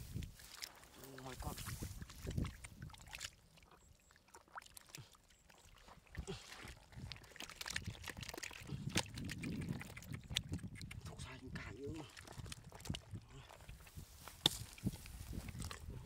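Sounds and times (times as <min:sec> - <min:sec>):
wet mud squelching: 0:00.0 - 0:16.0
clicks and splatters: 0:06.2 - 0:11.2.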